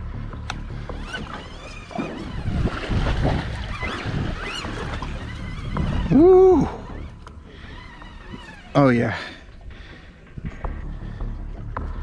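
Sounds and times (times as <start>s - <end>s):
water washing around boat hull: 0.5s - 10.5s
wind buffeting microphone: 1.9s - 11.2s.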